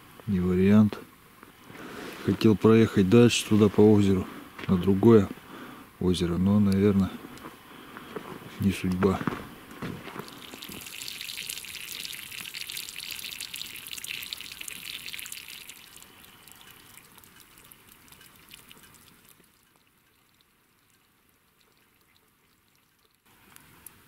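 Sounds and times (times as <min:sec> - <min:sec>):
water dripping onto ice: 0:10.1 - 0:24.0.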